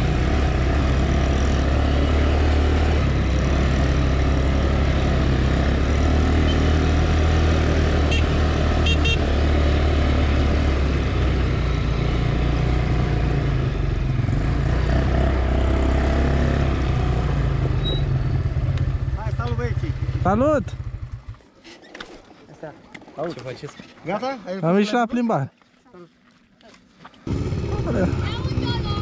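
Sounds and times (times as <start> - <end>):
engine running with rushing noise: 0.0 - 21.4, 27.3 - 29.0.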